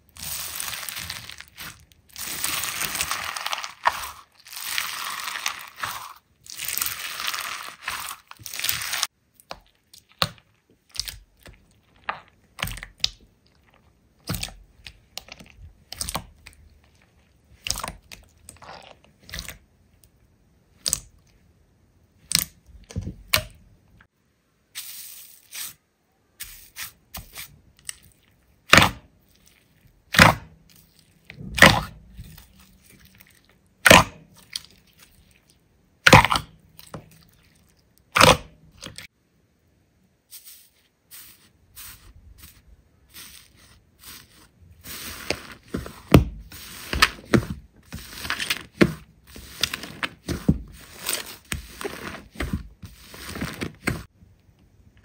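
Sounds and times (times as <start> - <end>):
slime crackling and squishing: 0.0 - 19.7, 26.6 - 39.1, 40.4 - 54.1.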